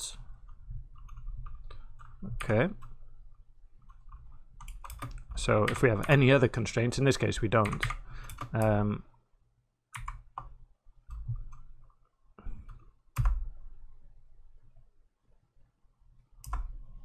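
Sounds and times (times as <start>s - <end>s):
computer keyboard keystrokes: 3.9s - 6.2s, 7.6s - 8.7s, 10.0s - 10.5s.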